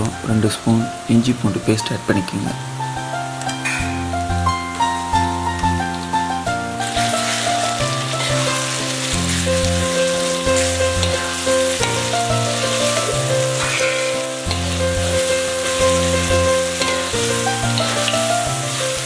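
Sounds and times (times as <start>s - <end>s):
background music with sustained chords: 0.0s - 19.0s
vegetables sizzling in hot oil: 2.6s - 19.0s
metal spatula stirring and scraping: 6.8s - 19.0s.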